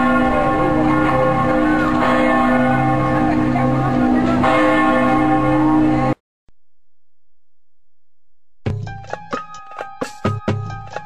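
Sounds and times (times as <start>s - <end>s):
church bells ringing: 0.0s - 6.2s.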